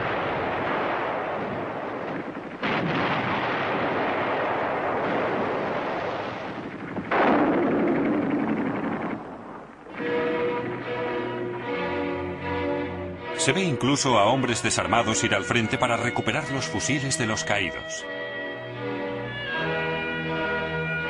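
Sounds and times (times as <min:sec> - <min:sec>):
gunfire and explosions: 0:00.0 - 0:12.0
music: 0:09.9 - 0:21.0.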